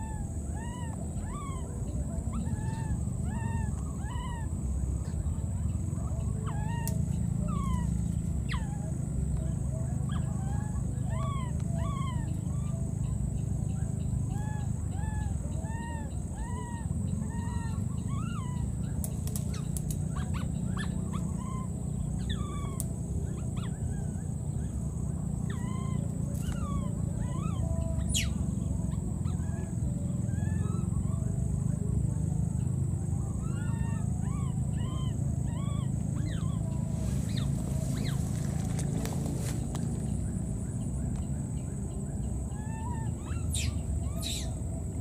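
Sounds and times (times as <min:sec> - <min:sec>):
baby monkey crying: 0:00.0 - 0:04.6, 0:06.5 - 0:09.0, 0:10.0 - 0:13.2, 0:14.3 - 0:24.2, 0:25.4 - 0:31.1, 0:33.4 - 0:39.6, 0:42.5 - 0:44.6
low background noise: 0:00.0 - 0:45.0.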